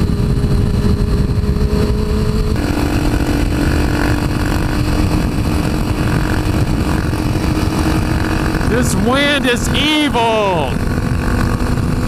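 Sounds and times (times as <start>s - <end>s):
motorcycle engine running: 0.0s - 12.0s
wind noise on microphone: 0.0s - 12.0s.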